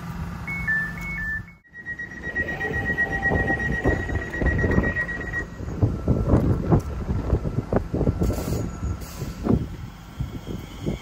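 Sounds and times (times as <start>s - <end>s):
two-pitch door warning beeps: 0.5s - 5.7s
steady high tone: 0.5s - 6.3s
train rumble: 1.7s - 11.0s.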